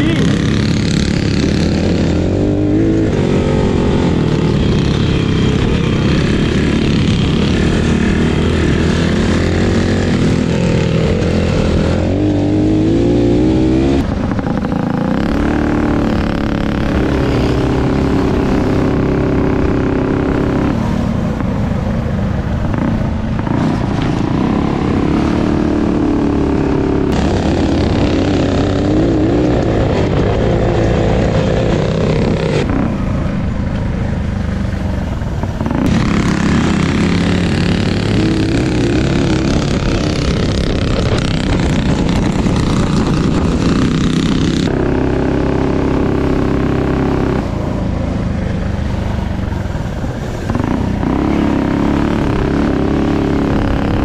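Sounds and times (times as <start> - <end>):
mini bike engines revving: 0.0 - 54.0
wind on microphone: 34.7 - 54.0.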